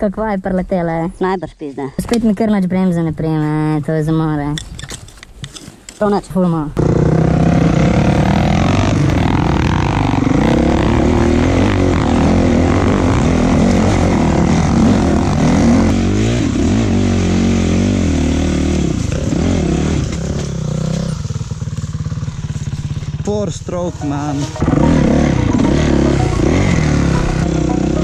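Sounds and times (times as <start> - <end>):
dirt bike engine revving: 6.8 - 28.0.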